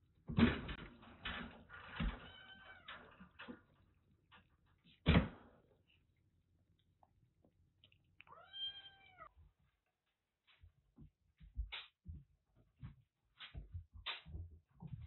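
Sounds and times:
cat meowing: 8.2 - 9.4.

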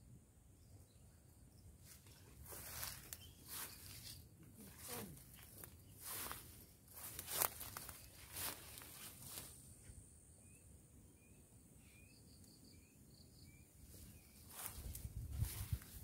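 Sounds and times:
footsteps rustling through vegetation: 1.8 - 9.8, 13.9 - 16.0.

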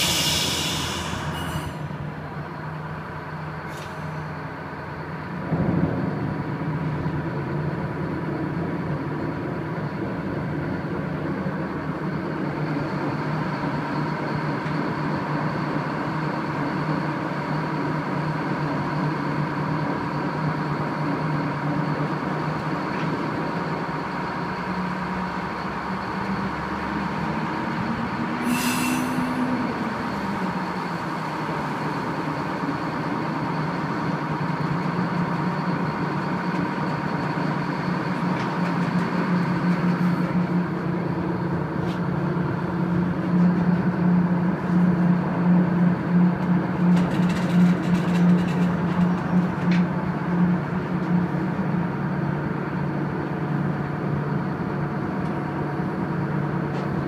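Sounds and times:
short hiss: 0.0 - 1.9, 28.4 - 29.3
boat diesel engines droning: 0.0 - 57.0.

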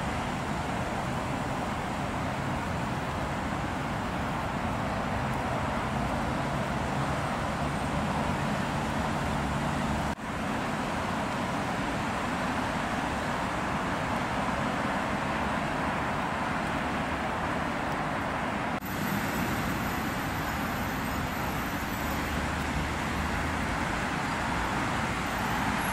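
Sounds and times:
road traffic hiss and rumble: 0.0 - 25.9.

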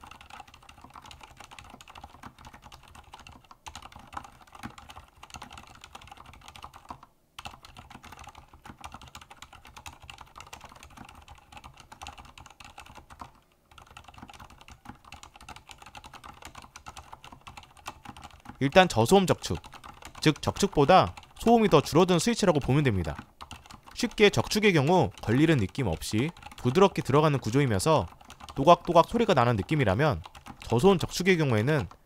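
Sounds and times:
mechanical keyboard typing: 0.0 - 32.0.

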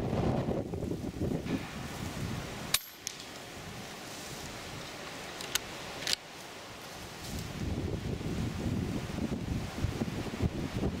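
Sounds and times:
wind buffeting microphone: 0.0 - 2.8, 7.0 - 11.0.

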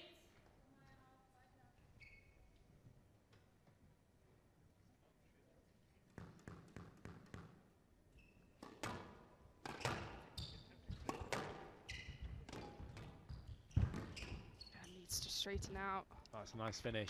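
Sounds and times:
shoes squeaking on court floor: 1.9 - 2.7, 8.1 - 15.7
ball hitting walls: 6.1 - 7.6, 8.6 - 14.6
racket striking ball: 8.6 - 10.3, 10.9 - 14.5
squash ball knocks: 8.6 - 14.6.

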